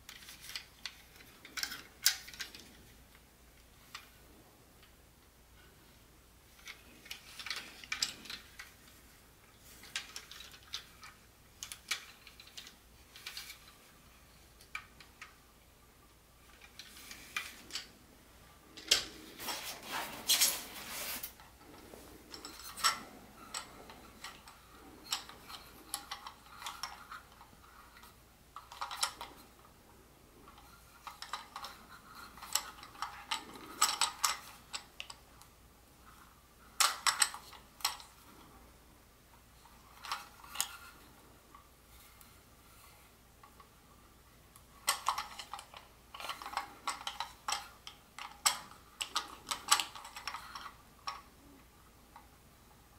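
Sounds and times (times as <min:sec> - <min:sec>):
plastic toy cars clicking: 0:00.0 - 0:03.2, 0:06.5 - 0:09.0, 0:09.8 - 0:13.8, 0:22.3 - 0:29.5, 0:30.4 - 0:35.5, 0:36.8 - 0:38.4, 0:39.7 - 0:41.1, 0:44.8 - 0:52.4
rustling scrape: 0:16.8 - 0:27.0.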